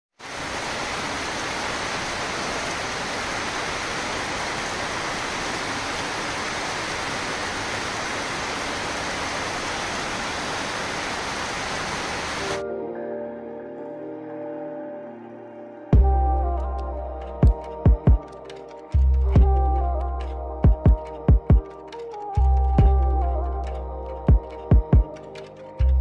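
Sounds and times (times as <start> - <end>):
steady rain falling: 0.1 - 12.6.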